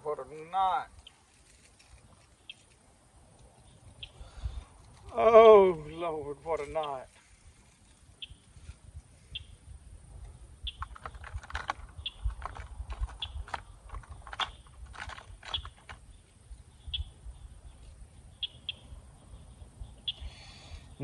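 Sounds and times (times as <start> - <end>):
fishing tackle clicks and knocks: 10.7 - 16.0.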